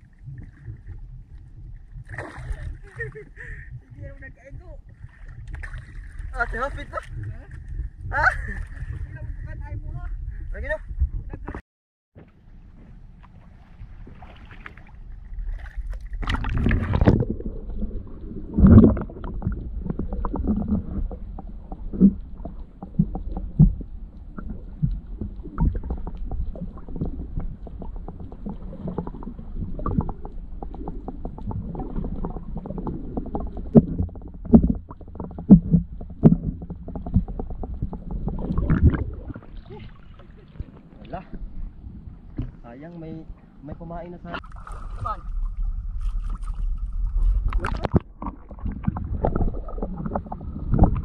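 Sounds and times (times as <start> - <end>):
muffled underwater sloshing: 0.0 - 11.6, 12.2 - 51.0
water splash: 1.9 - 3.2, 4.9 - 9.1, 13.1 - 41.4, 44.2 - 51.0
underwater knocks and clicks: 15.6 - 39.7, 42.3 - 42.6, 46.0 - 51.0.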